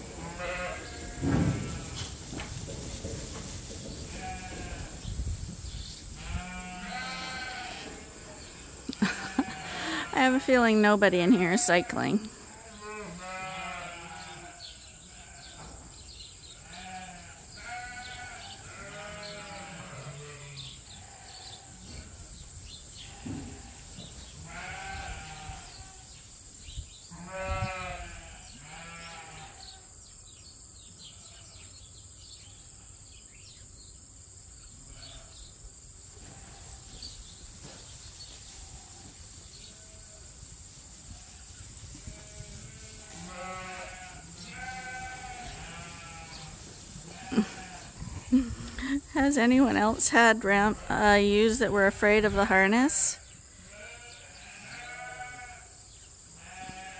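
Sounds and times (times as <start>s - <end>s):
sheep bleating: 0.2s - 2.0s, 4.2s - 4.9s, 6.2s - 8.0s, 8.9s - 10.4s, 11.2s - 15.6s, 16.6s - 21.7s, 24.4s - 25.9s, 27.2s - 29.7s, 42.1s - 49.0s, 53.7s - 55.7s, 56.4s - 56.9s.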